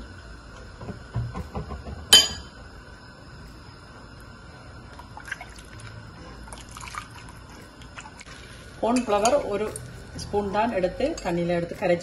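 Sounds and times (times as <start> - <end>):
liquid sloshing: 5.2 - 8.4.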